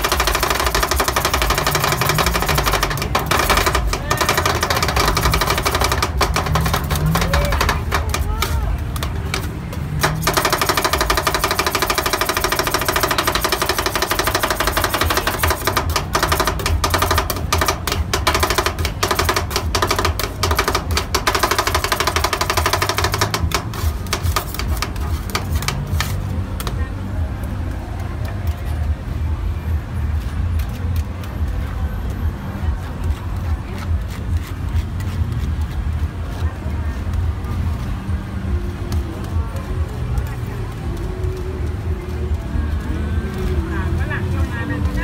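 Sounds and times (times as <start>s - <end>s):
metal spatulas tapping on metal pan: 0.0s - 26.7s.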